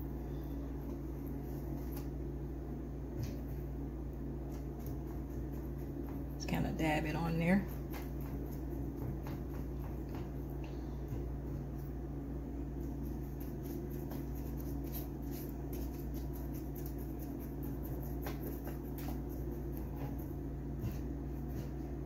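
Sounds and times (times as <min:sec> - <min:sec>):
low electrical hum: 0:00.0 - 0:22.0
basting brush dabbing: 0:12.6 - 0:21.8.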